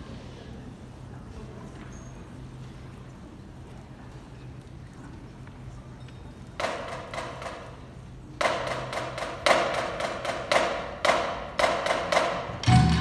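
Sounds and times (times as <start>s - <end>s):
drumline playing: 8.4s - 13.0s.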